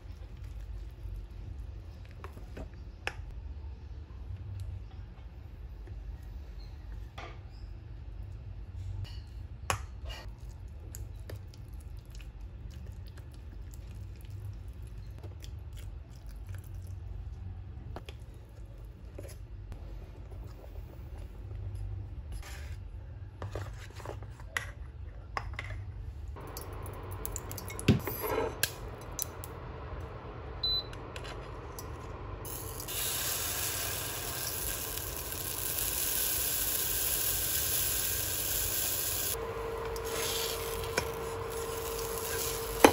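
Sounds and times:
batter sizzling in saucepan: 0:32.5 - 0:42.9.

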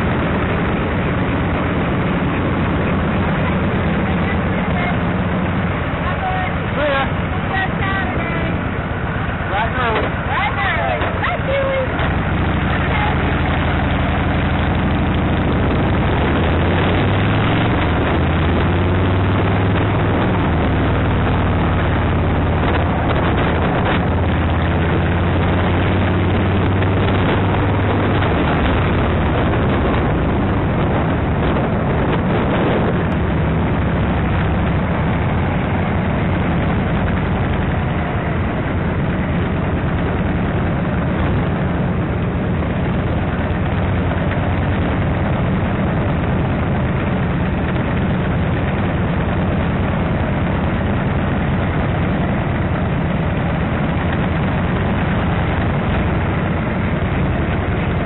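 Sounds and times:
motorcycle engine running: 0:00.0 - 0:58.0
wind rushing on microphone: 0:00.0 - 0:58.0.

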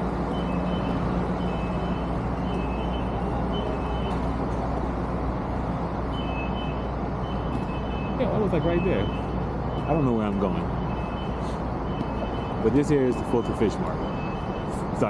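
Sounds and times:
city traffic with engine hum: 0:00.0 - 0:15.0.

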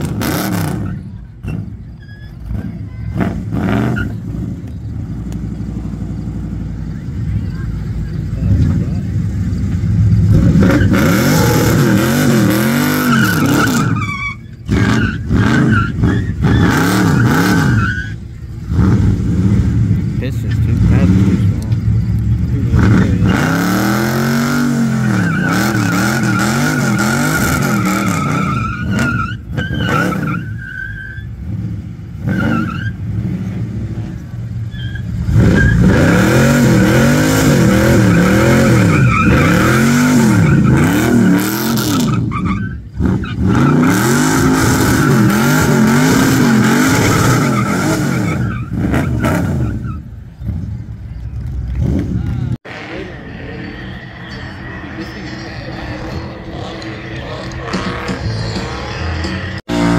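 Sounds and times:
tyres squealing: 0:00.0 - 0:05.0, 0:07.0 - 0:31.5, 0:32.2 - 0:33.1, 0:34.1 - 0:51.3
car engine revving: 0:00.0 - 0:59.9.

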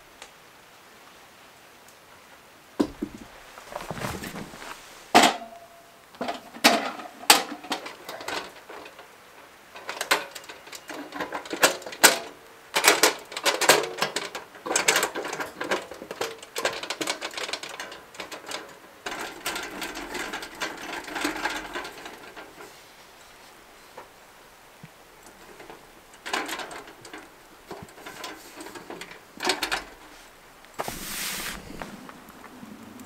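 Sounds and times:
metal rattling and scraping: 0:02.8 - 0:05.5, 0:12.9 - 0:24.2, 0:25.1 - 0:32.1
metal latches clicking and clattering: 0:09.8 - 0:22.8, 0:25.2 - 0:30.2.

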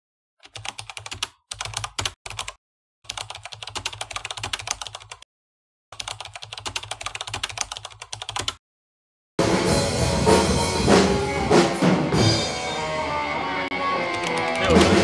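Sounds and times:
keyboard typing clicks: 0:14.1 - 0:15.0.

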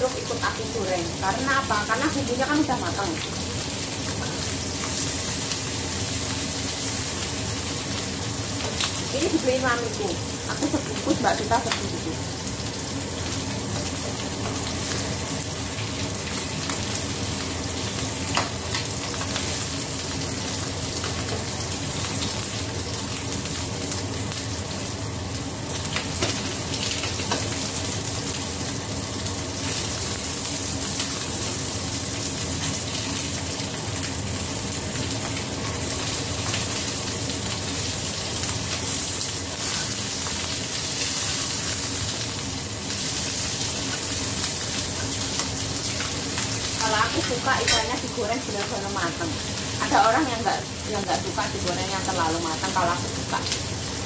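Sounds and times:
fish sizzling in hot oil: 0:00.0 - 0:54.0.

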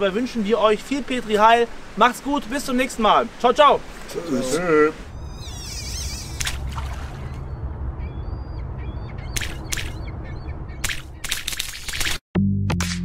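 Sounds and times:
bird calls: 0:03.8 - 0:11.6
low rumble: 0:05.1 - 0:11.2
warbling chirps: 0:05.1 - 0:12.0
sharp clicks or plops: 0:09.4 - 0:10.0.

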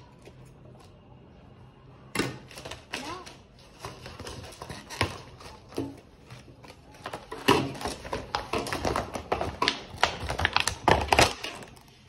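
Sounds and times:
plastic packaging crackling: 0:02.4 - 0:12.0.

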